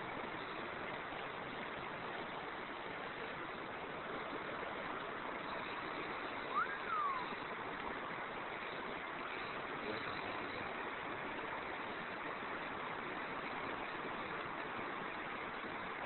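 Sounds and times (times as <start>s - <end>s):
river water rushing: 0.0s - 16.0s
whistle-like chirp: 6.4s - 7.4s.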